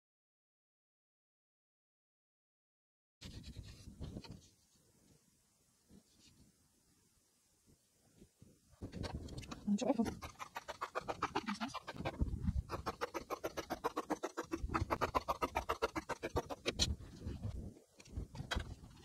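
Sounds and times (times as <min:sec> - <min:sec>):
rapid scratchy ticks: 0:08.9 - 0:19.0.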